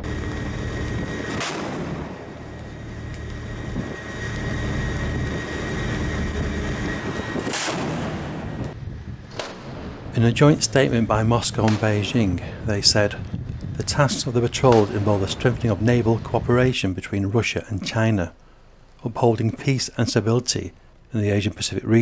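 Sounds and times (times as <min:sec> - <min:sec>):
faint high whine: 0:00.0 - 0:09.2
ship's machinery: 0:00.0 - 0:09.6
gun blasts: 0:01.1 - 0:02.8, 0:07.3 - 0:10.5, 0:11.3 - 0:12.5, 0:14.6 - 0:16.7
wind rushing: 0:03.5 - 0:16.9.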